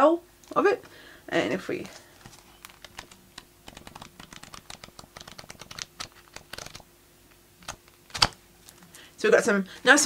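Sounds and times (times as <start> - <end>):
paper pages riffled: 1.9 - 6.8.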